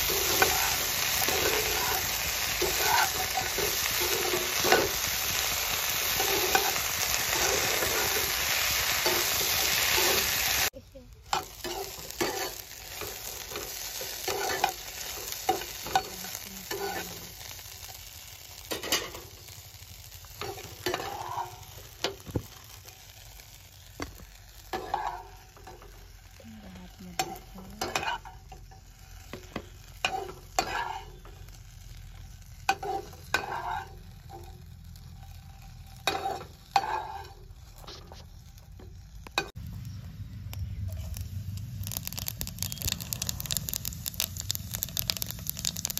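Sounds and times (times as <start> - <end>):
spatula scraping a pan: 0.0 - 10.7, 11.3 - 17.8, 20.4 - 22.6, 24.6 - 26.1, 27.1 - 31.5, 32.3 - 39.5
faint sizzle: 0.0 - 45.9.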